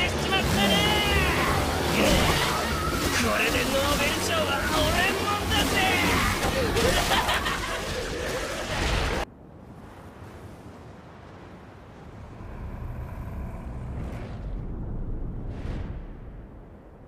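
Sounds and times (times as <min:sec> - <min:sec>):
loud noisy sound: 0:00.0 - 0:09.2
low rumble: 0:11.7 - 0:17.0.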